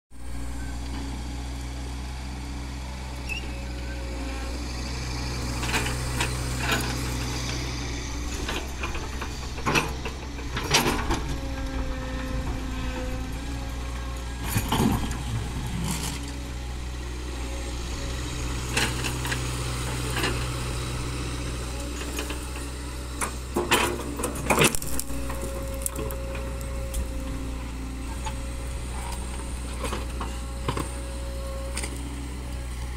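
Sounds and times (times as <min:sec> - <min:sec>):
diesel engine running: 0:00.1 - 0:32.9
rocks clattering and scraping: 0:23.6 - 0:27.0
bucket digging stony soil: 0:24.1 - 0:26.2.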